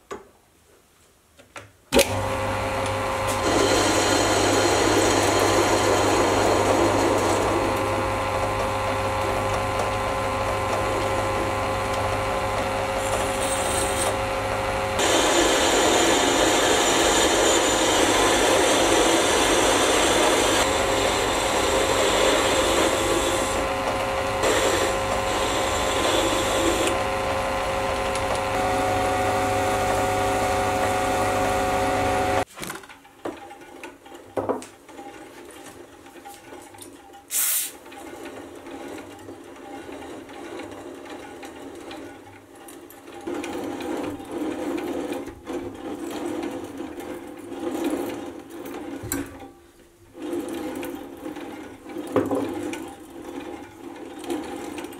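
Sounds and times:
motor whine: 0:02.0 - 0:32.4
lathe cutting steel: 0:02.1 - 0:32.5.

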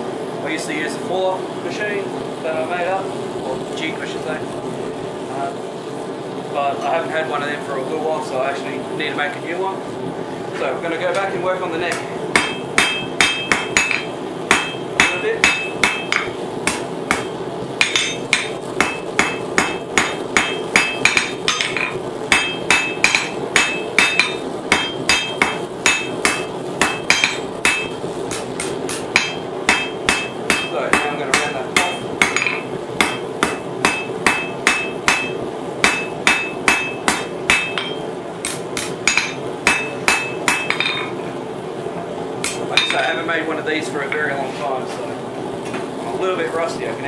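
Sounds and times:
steady low hum: 0:00.0 - 0:47.0
hammer striking metal on anvil: 0:11.9 - 0:41.1, 0:42.4 - 0:43.2.

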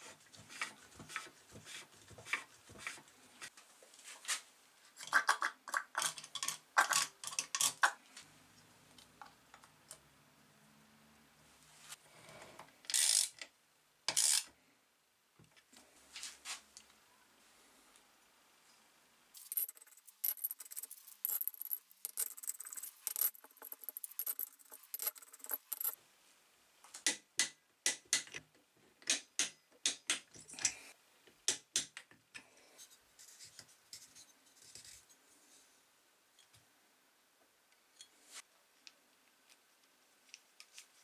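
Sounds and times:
ratchet wrench clicking: 0:12.9 - 0:13.4
torque wrench clicks: 0:12.9 - 0:13.4
metal handling sounds: 0:19.4 - 0:26.0.

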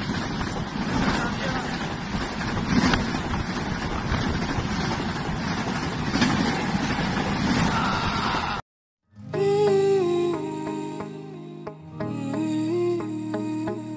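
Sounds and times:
train coaches passing at speed: 0:00.0 - 0:08.6.

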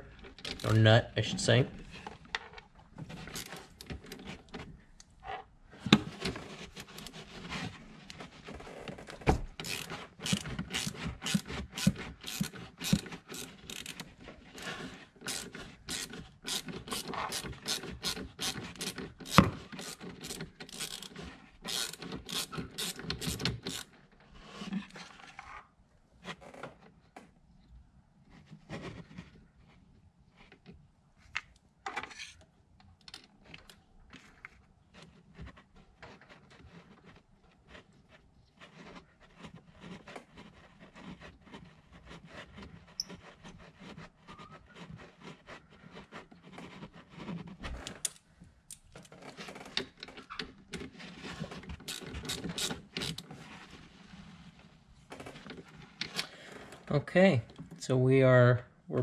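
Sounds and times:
socket ratchet clicking: 0:21.7 - 0:23.9.

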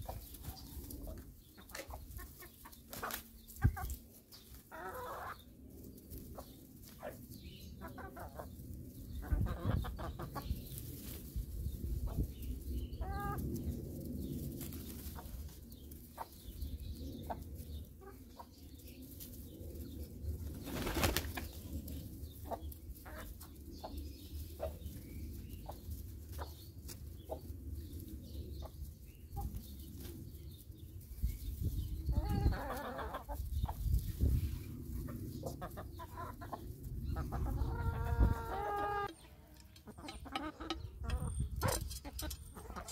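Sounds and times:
hens clucking: 0:00.0 - 0:05.5, 0:07.8 - 0:10.9, 0:12.0 - 0:13.7, 0:17.1 - 0:18.6, 0:22.4 - 0:27.5, 0:32.1 - 0:42.9.

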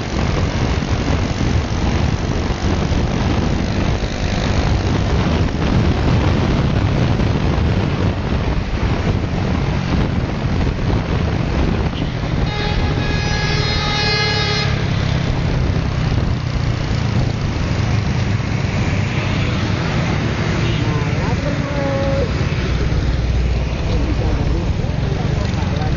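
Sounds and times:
motorcycle engine: 0:00.0 - 0:25.9
road noise: 0:00.0 - 0:25.9
wind buffeting microphone: 0:00.0 - 0:25.9
vehicle horn: 0:12.0 - 0:15.2.

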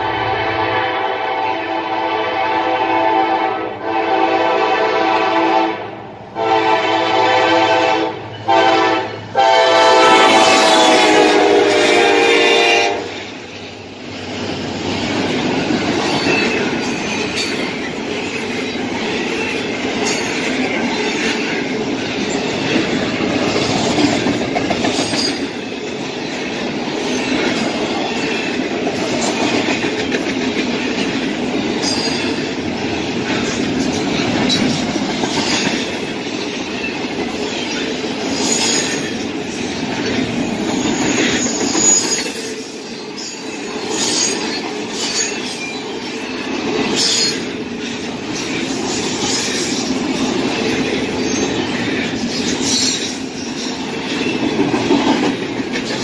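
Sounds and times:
train wheels rumbling on rails: 0:00.0 - 0:56.0
locomotive air horn blasts: 0:00.1 - 0:13.2.

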